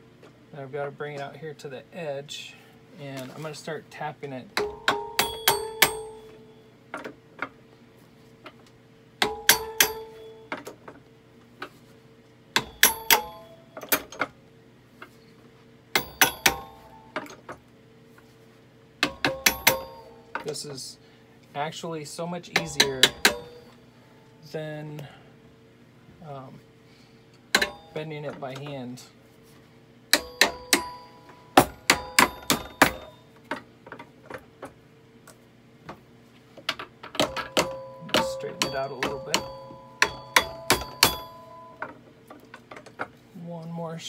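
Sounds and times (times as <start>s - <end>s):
hammer tapping metal fork: 4.6s - 6.4s, 9.2s - 10.6s, 12.6s - 13.9s, 16.0s - 17.0s, 19.0s - 20.4s, 22.6s - 23.8s, 30.2s - 33.2s, 37.2s - 41.8s.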